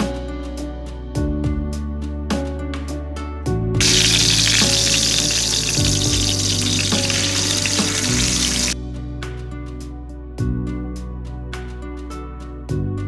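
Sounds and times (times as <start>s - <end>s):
soft background music: 0.0s - 13.0s
fish sizzling in hot oil: 3.8s - 8.8s.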